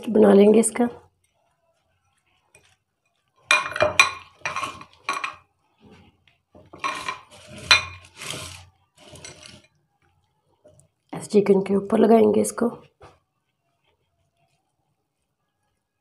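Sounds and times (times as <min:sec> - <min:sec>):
glass plate clinking and scraping: 0:03.4 - 0:06.0, 0:06.6 - 0:09.8.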